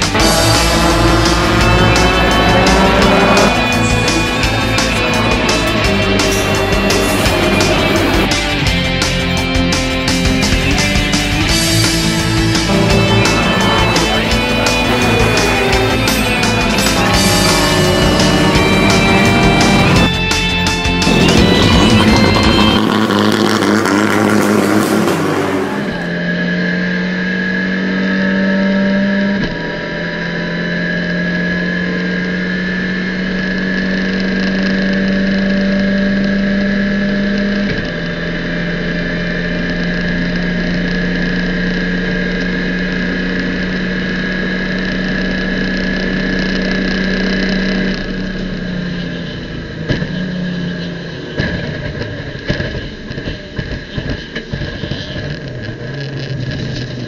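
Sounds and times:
music: 0:00.0 - 0:25.1
race car engine at speed: 0:00.0 - 0:57.0.

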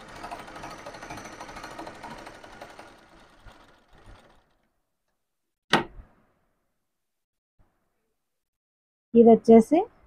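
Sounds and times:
sewing machine stitching: 0:00.0 - 0:04.7.

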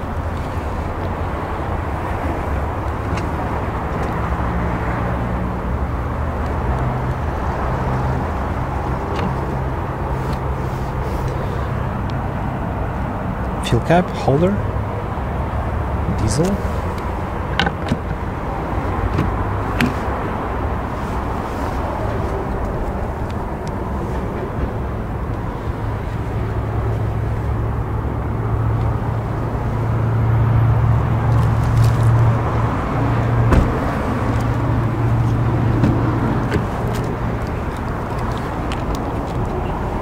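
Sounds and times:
car door clicks and thud: 0:17.5 - 0:18.3, 0:19.0 - 0:20.3, 0:33.3 - 0:39.2.

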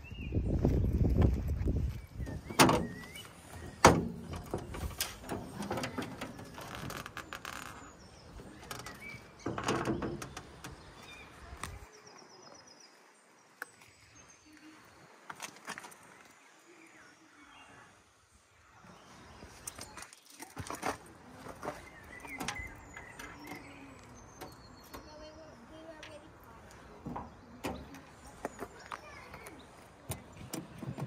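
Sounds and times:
metal panel rattling clatter: 0:03.8 - 0:06.7, 0:08.9 - 0:10.7.

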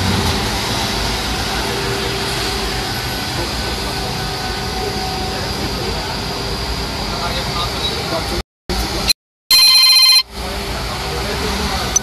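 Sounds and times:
water cannon rushing: 0:00.0 - 0:07.2.

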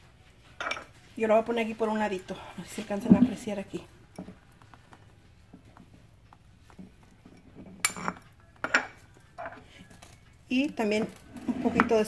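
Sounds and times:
metal spoon clinking on stone: 0:07.8 - 0:09.6
spoon scraping stone bowl: 0:10.9 - 0:12.0.

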